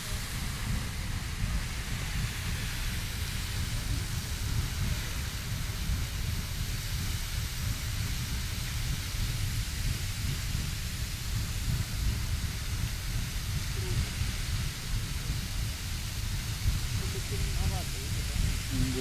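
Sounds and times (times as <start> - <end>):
geyser hissing water and steam: 0.0 - 19.0
low rumble: 7.6 - 19.0.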